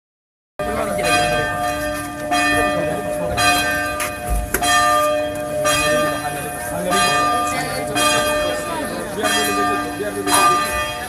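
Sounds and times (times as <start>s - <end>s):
church bells tolling: 0.6s - 11.0s.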